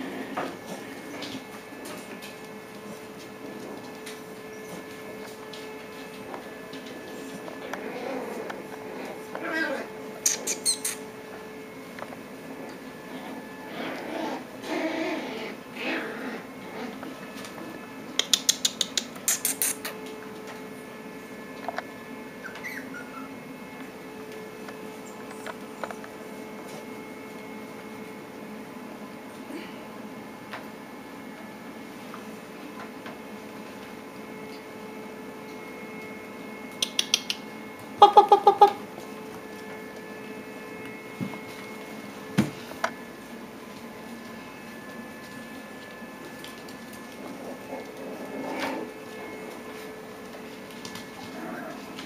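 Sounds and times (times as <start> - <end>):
puppy claws clicking on tile: 18.2 - 20.0, 36.8 - 37.5.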